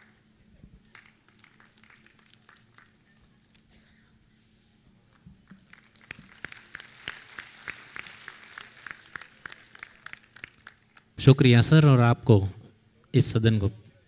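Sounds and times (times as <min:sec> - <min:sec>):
crowd applauding: 0:00.8 - 0:03.7, 0:05.4 - 0:11.2.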